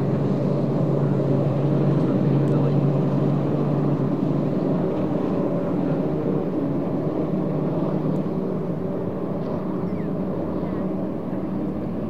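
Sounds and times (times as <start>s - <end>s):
outboard engines droning: 0.0s - 12.0s.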